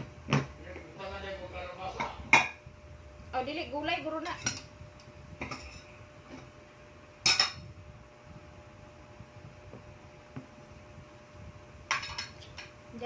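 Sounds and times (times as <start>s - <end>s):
faint steady hum: 0.0s - 13.0s
tableware clattering: 2.0s - 2.6s, 5.4s - 6.4s, 7.2s - 7.7s, 11.9s - 12.7s.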